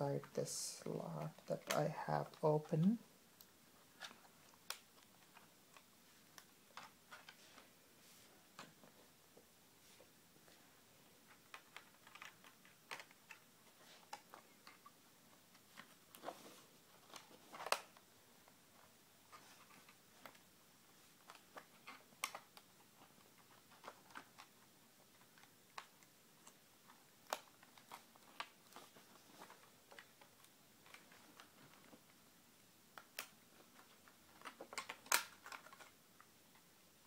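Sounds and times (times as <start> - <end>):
small clicks of laptop parts: 11.3 - 13.4, 32.9 - 36.6.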